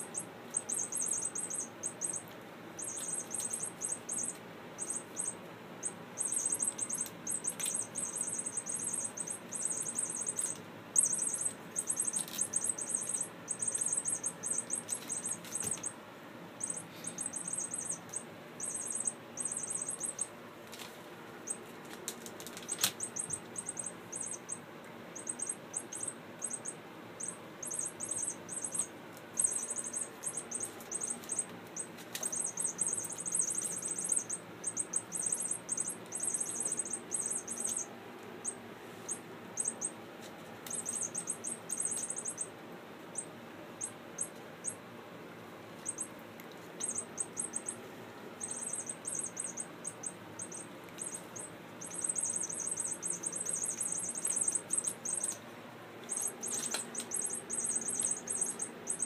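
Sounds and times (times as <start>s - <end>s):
kittens rustling blankets and paper: 14.7s - 15.9s, 20.6s - 23.6s, 29.1s - 34.3s, 56.0s - 58.5s.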